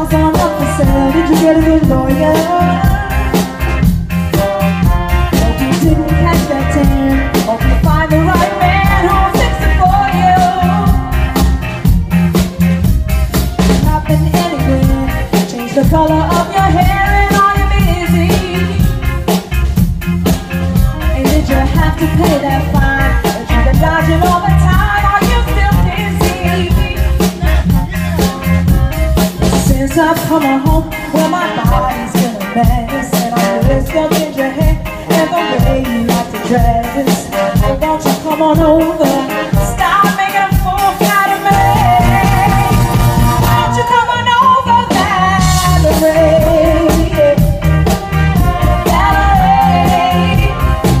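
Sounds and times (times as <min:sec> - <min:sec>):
woman singing with vibrato: 0:00.0 - 0:03.8, 0:04.8 - 0:12.1, 0:13.6 - 0:19.2, 0:20.5 - 0:51.0
drum kit steady beat: 0:00.0 - 0:51.0
electric bass: 0:00.0 - 0:51.0
live band playing: 0:00.0 - 0:51.0.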